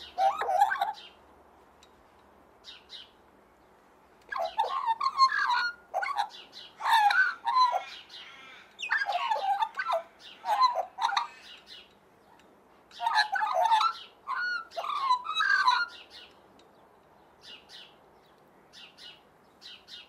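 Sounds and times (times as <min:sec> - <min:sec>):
magpie warbling: 0:08.8 - 0:11.3.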